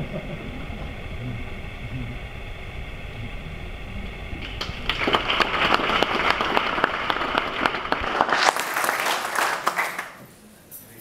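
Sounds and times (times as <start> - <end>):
steady hum: 0.0 - 11.0
audience applauding: 4.4 - 10.2.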